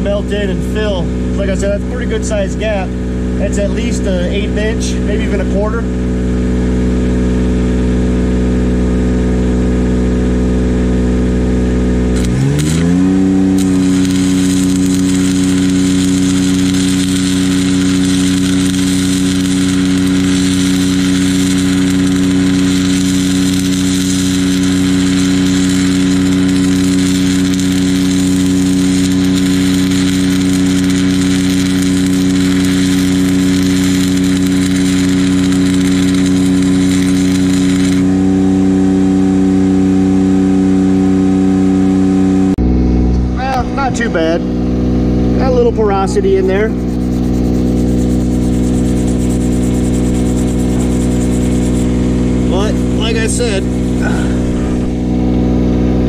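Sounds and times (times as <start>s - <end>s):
welder engine running: 0.0s - 56.0s
welding arc crackling and sizzling: 11.9s - 38.3s, 45.5s - 55.2s.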